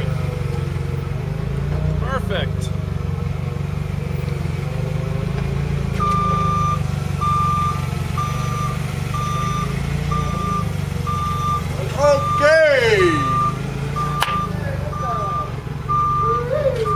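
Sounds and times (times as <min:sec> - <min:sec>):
forklift engine humming: 0:00.0 - 0:16.9
backup alarm beeping: 0:06.0 - 0:16.9.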